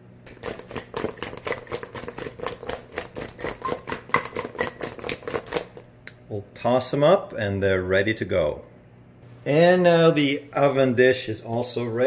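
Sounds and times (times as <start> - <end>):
chicken wings rattling in metal bowl: 0.2 - 6.0.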